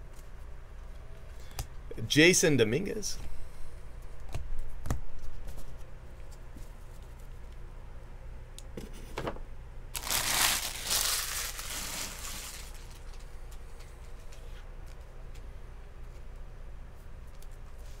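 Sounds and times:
wrapper crinkling: 10.0 - 13.2.

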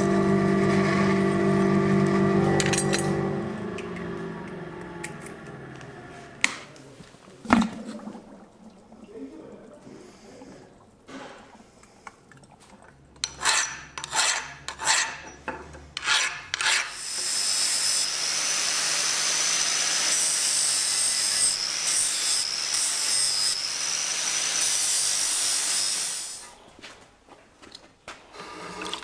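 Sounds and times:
angle grinder grinding steel: 0.0 - 6.4, 16.0 - 26.5.

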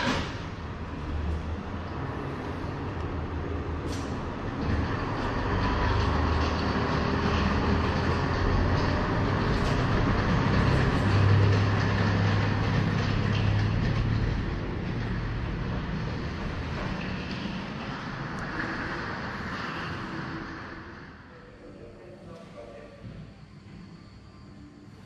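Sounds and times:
diesel railcar engine: 0.0 - 22.7
train wheels on rails: 3.8 - 21.1.

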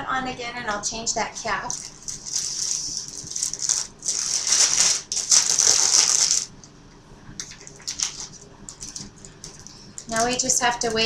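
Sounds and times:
rustling and scraping handling noise: 1.6 - 6.5.

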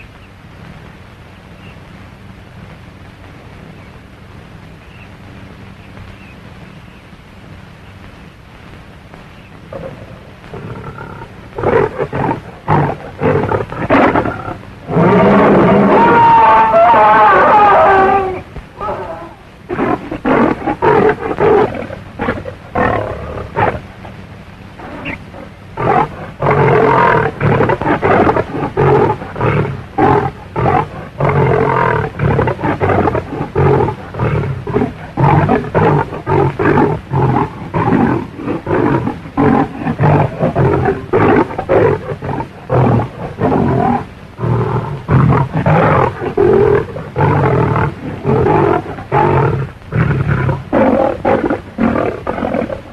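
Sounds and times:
lion roaring and snarling: 9.7 - 19.1, 24.8 - 52.9.

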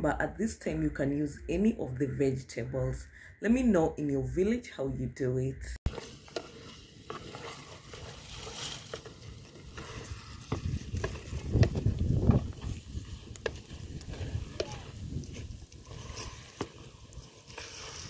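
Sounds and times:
soft sizzle: 5.9 - 18.0
wooden spoon scraping clay pot: 5.9 - 18.0.

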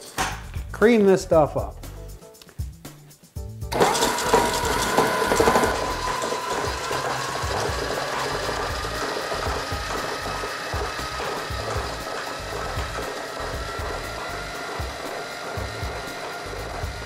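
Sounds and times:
stand mixer motor whirring: 3.7 - 17.0.

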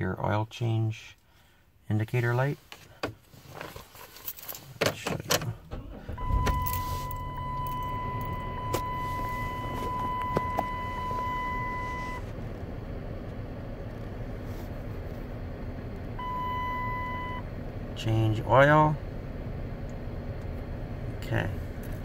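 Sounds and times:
car engine starting and idling: 2.8 - 22.0
electronic warning tone: 6.2 - 12.2.

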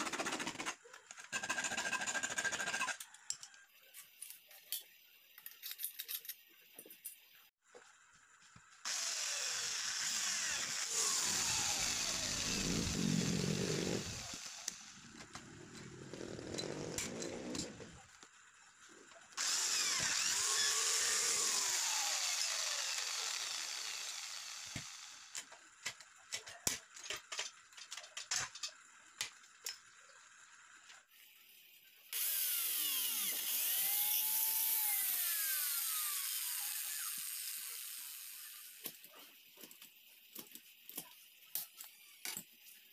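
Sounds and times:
electric drill boring into metal: 8.8 - 15.1, 19.4 - 25.4, 32.1 - 38.8.

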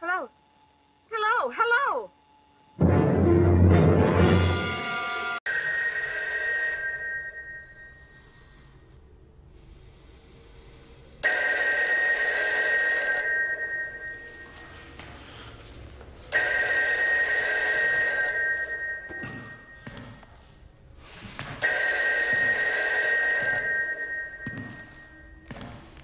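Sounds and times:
telephone bell ringing: 5.5 - 8.7, 11.2 - 14.8, 16.3 - 20.2, 21.6 - 25.5.

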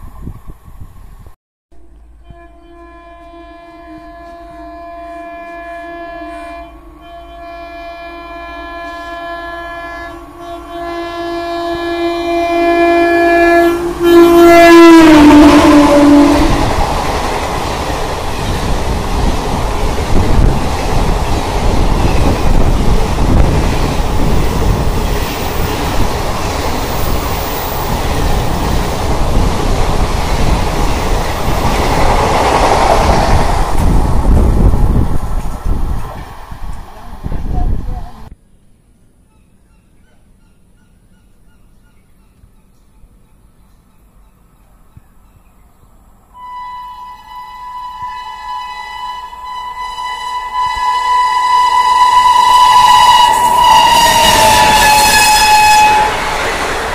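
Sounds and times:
train horn long blast: 1.8 - 16.8, 46.3 - 56.7
passing train coaches rushing: 3.0 - 38.3, 46.4 - 56.9.

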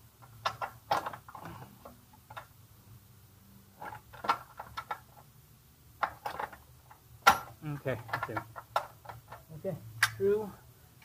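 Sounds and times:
metallic clicks and knocks: 7.2 - 10.2.

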